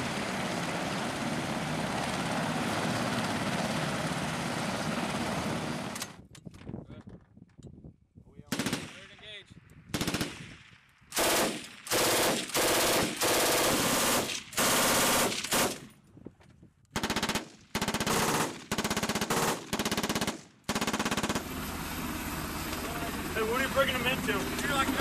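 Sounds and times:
machine gun bursts: 8.5 - 9.1, 10.0 - 10.4, 11.1 - 15.9, 17.0 - 21.5.

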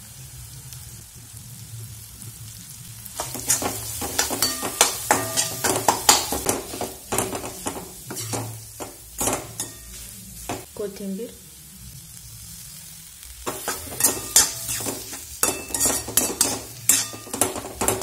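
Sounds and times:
steel spatula scraping a pan: 3.2 - 10.7, 13.5 - 18.0.

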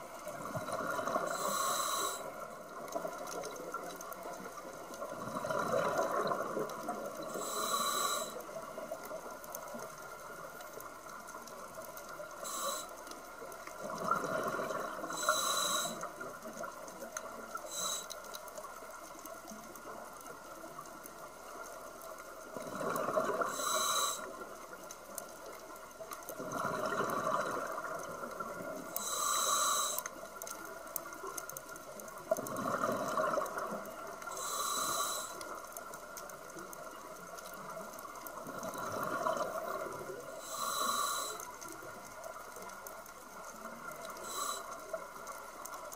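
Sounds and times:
diver inhaling through regulator: 1.1 - 2.4, 7.3 - 8.4, 12.4 - 13.0, 15.1 - 16.1, 17.7 - 18.1, 23.4 - 24.3, 29.0 - 30.1, 34.3 - 35.4, 40.4 - 41.5, 44.2 - 44.8
exhaled bubbles burbling: 5.1 - 7.3, 13.8 - 15.2, 22.5 - 23.6, 26.4 - 28.7, 32.3 - 34.0, 38.3 - 40.4.

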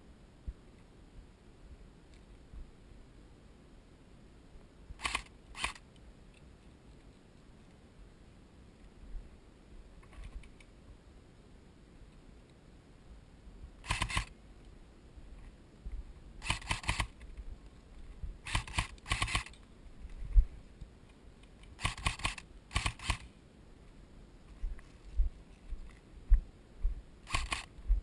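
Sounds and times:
airsoft rifle firing bursts: 13.8 - 14.3, 16.4 - 17.2, 18.4 - 19.6, 21.8 - 23.3.

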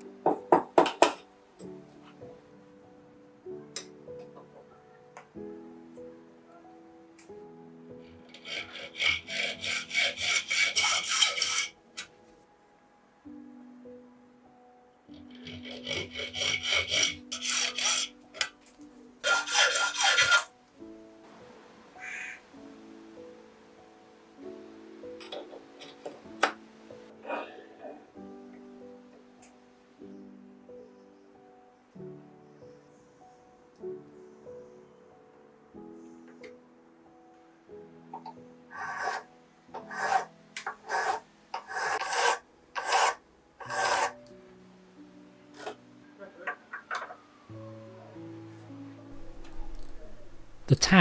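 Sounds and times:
hacksaw cutting metal: 8.3 - 11.8, 15.2 - 18.5, 19.2 - 20.5, 38.7 - 39.2, 39.8 - 44.2
hand file rasping on brass: 8.3 - 11.8, 15.2 - 18.2, 19.2 - 20.5, 38.7 - 44.2.

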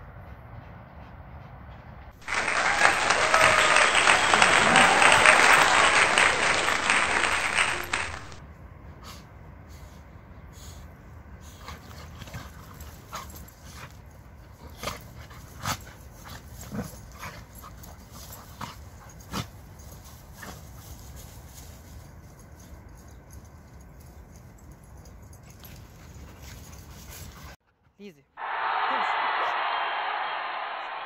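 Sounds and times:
dogs play-fighting: 8.9 - 27.6.

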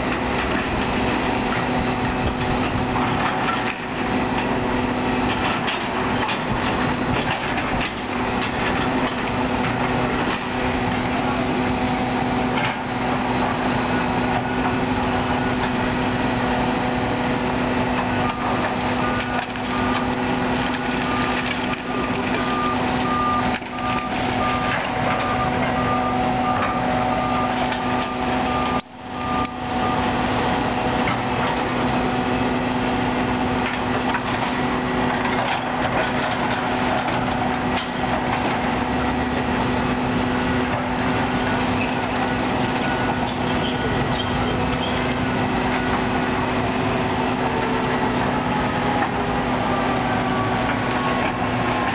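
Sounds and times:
excavator diesel engines: 0.0 - 51.9
reversing alarm beeping: 18.2 - 30.2.

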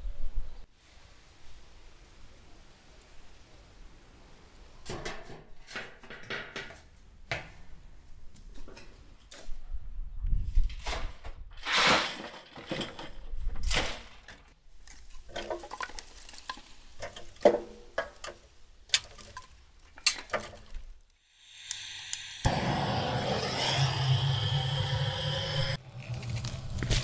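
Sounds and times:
shovels scraping soil: 11.6 - 12.9
gas torch hissing: 21.3 - 25.8.

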